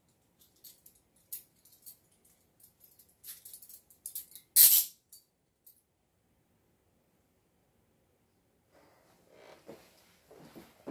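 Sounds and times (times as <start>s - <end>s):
handcuffs clicking and clinking: 0.1s - 5.8s.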